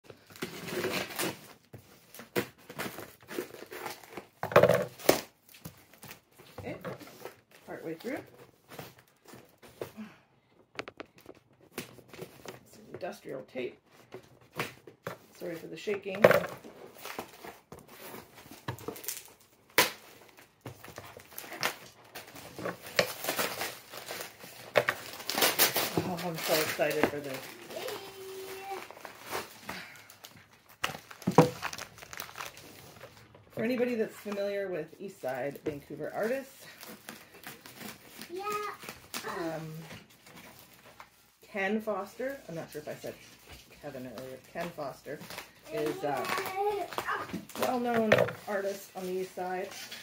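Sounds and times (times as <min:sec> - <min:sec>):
wrapping crinkling and tearing: 0:00.1 - 0:10.1, 0:16.7 - 0:33.6, 0:35.5 - 0:41.4, 0:42.2 - 0:50.0.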